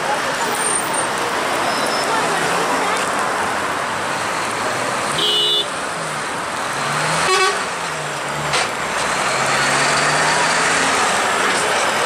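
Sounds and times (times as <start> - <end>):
road traffic engines: 0.0 - 12.0
vehicle horn honks: 5.2 - 5.7, 7.2 - 7.7.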